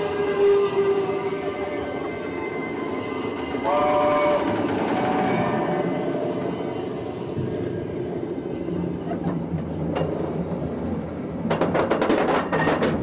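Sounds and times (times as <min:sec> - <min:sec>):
roller coaster train rumbling: 0:00.0 - 0:13.0
roller coaster clattering: 0:07.2 - 0:13.0.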